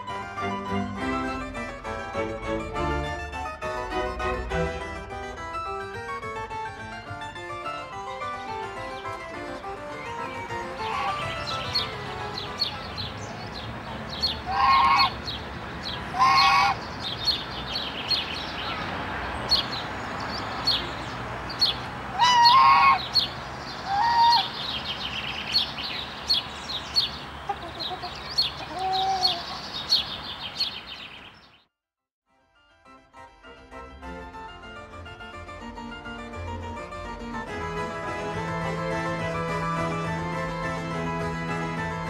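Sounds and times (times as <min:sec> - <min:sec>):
songbirds chirping: 0:08.7 - 0:31.7
geese and ducks calling: 0:08.8 - 0:31.3.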